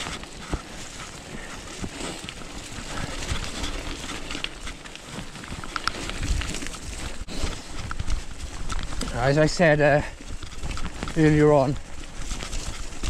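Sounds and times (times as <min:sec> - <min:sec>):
bike rattling over bumps: 0:00.0 - 0:13.0
bike tyres on dirt trail: 0:00.0 - 0:13.0.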